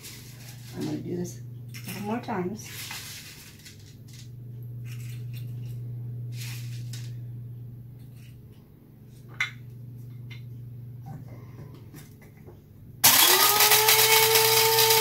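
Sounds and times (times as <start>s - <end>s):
dry celery pieces rustling: 0.0s - 1.1s
steady low hum: 0.0s - 13.1s.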